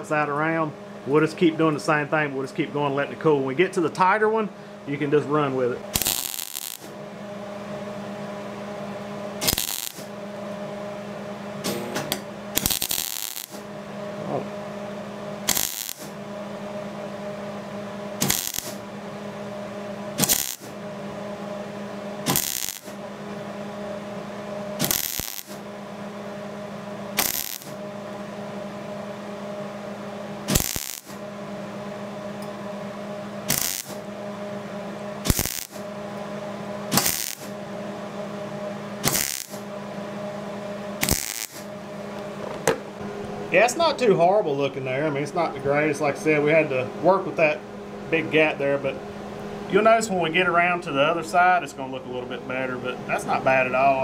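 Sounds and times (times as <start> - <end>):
steady hum: 0.0 - 54.0
welding arc crackling bursts: 5.9 - 6.9, 9.4 - 10.1, 11.7 - 13.6, 15.4 - 16.2, 18.2 - 18.8, 20.2 - 20.8, 22.2 - 23.0, 24.8 - 25.6, 27.2 - 27.8, 30.5 - 31.2, 33.5 - 34.1, 35.2 - 35.8, 36.9 - 37.5, 39.0 - 39.6, 41.0 - 41.7.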